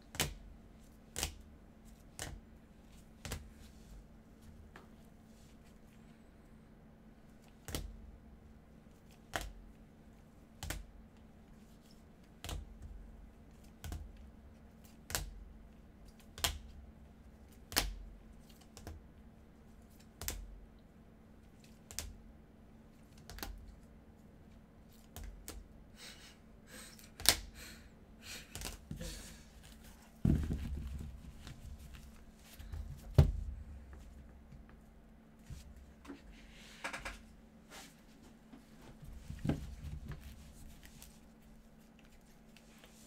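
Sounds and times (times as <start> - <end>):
soft thud: 30.2 - 31.9.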